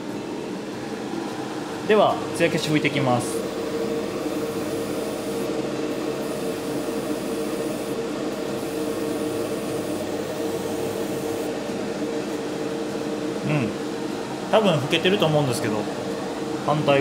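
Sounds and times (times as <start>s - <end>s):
exhaust fan hum and rush: 0.0s - 17.0s.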